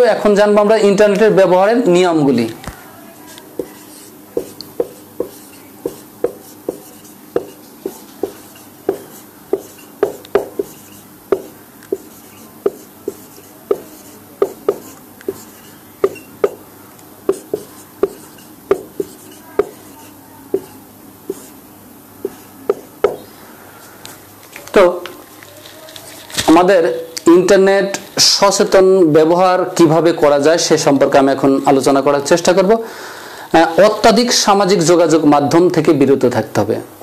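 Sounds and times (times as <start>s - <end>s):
marker tapping on whiteboard: 3.2s - 16.6s, 17.2s - 21.5s, 22.2s - 23.3s.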